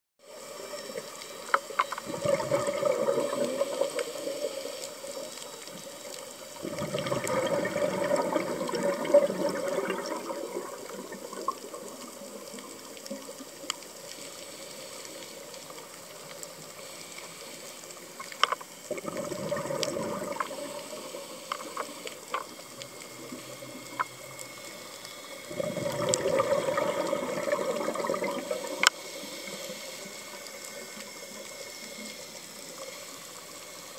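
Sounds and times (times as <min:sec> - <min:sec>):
regulator hiss: 0:00.2 - 0:19.0, 0:19.8 - 0:33.9
exhaled bubbles underwater: 0:02.0 - 0:05.7, 0:06.5 - 0:13.8, 0:18.8 - 0:29.0.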